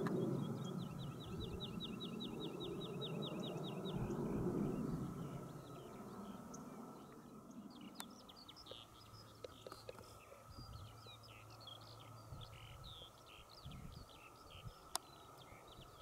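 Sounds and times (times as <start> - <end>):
low rumble: 0.0 - 7.8
small bird singing: 0.0 - 16.0.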